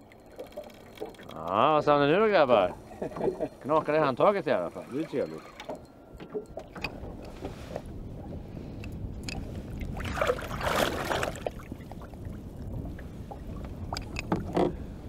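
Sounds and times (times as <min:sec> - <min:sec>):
fish thrashing and splashing: 0:09.9 - 0:11.8.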